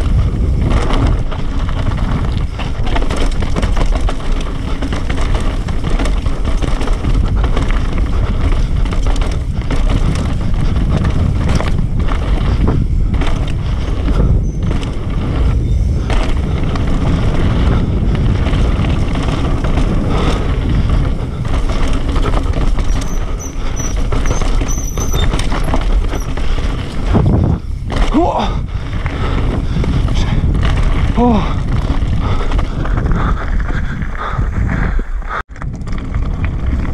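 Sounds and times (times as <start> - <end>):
tyre roar on dirt: 0.0 - 33.8
bike rattling and knocking: 0.0 - 36.9
wind on microphone: 0.0 - 36.9.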